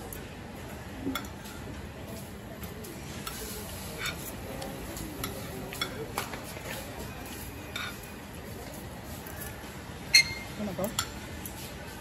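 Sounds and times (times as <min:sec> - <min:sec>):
cutlery clinking on a plate: 0:05.0 - 0:06.4, 0:07.7 - 0:08.1, 0:10.2 - 0:11.4.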